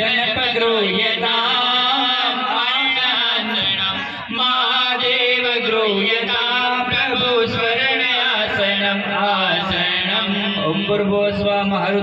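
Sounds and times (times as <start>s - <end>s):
man chanting into a microphone: 0.0s - 12.0s.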